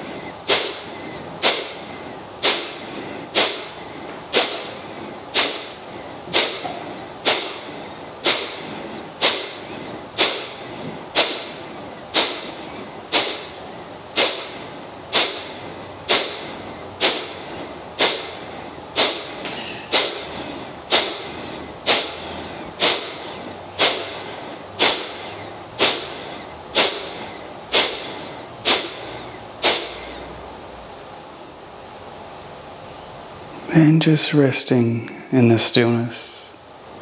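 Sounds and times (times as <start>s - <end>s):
forceful nasal exhalations: 0.0s - 13.6s, 14.2s - 30.0s.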